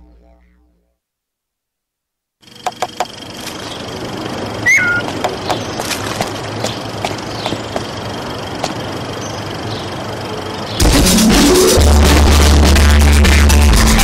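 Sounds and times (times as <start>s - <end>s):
outdoor ambience: 2.4s - 13.4s
short falling chirp: 4.6s - 5.1s
low droning music: 10.8s - 13.1s.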